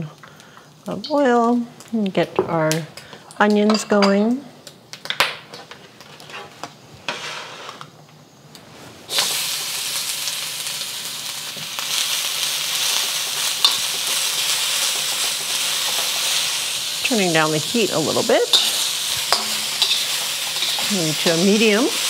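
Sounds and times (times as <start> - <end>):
onions sizzling in hot oil: 9.0 - 22.0.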